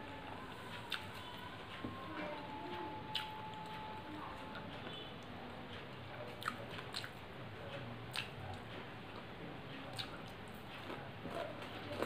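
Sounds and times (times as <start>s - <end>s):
wet chewing and smacking: 3.1s - 3.8s, 6.3s - 7.2s, 8.1s - 9.3s, 9.9s - 12.0s.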